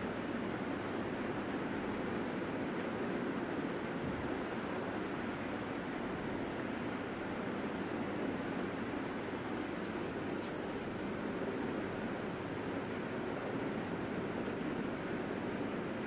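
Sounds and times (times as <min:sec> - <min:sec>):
room noise hiss: 0:00.0 - 0:16.0
high-pitched trilling chirps: 0:05.5 - 0:07.8, 0:08.6 - 0:11.4.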